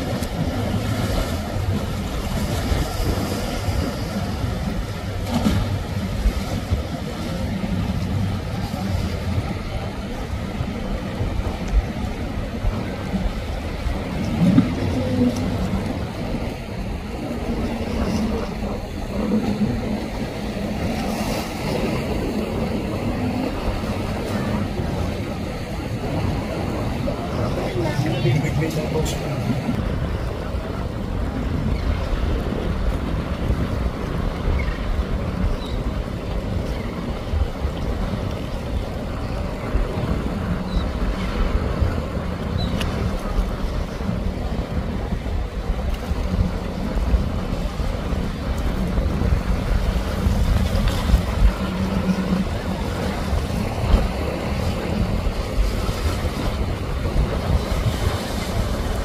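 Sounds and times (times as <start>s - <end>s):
boat engines running at speed: 0.0s - 59.0s
waves splashing: 0.0s - 59.0s
wind on microphone: 0.0s - 59.0s.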